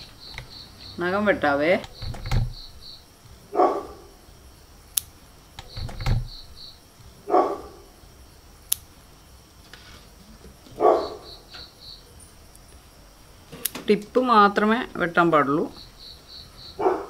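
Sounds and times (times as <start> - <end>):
nail clipper clicking: 8.7 - 8.9.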